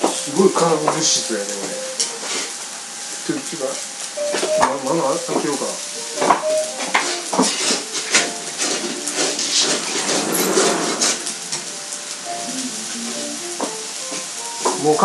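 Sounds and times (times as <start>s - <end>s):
food sizzling on a griddle: 0.0s - 15.0s
metal utensils scraping griddle: 0.8s - 2.6s, 3.3s - 12.2s.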